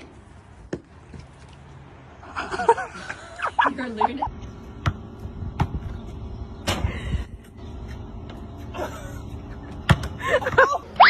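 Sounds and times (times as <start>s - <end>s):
basketball bouncing on asphalt: 0.0s - 1.3s, 4.4s - 6.2s, 9.7s - 10.7s.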